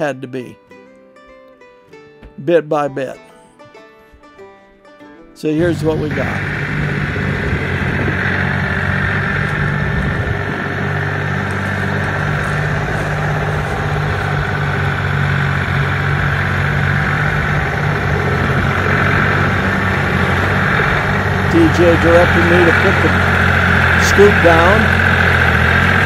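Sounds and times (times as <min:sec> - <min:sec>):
tractor engine running: 0:05.6 - 0:26.0.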